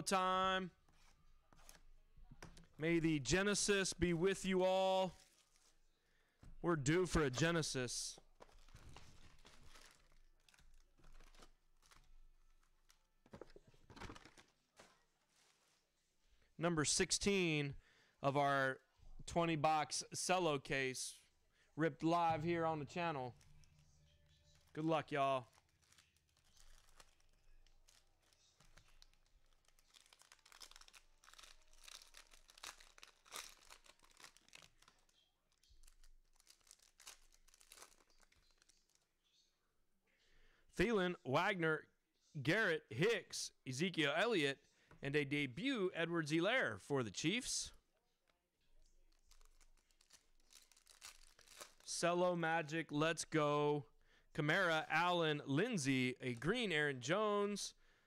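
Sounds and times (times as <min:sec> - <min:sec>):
cellophane packs being handled: 0:05.0 - 0:16.0, 0:24.4 - 0:39.1, 0:48.9 - 0:52.0.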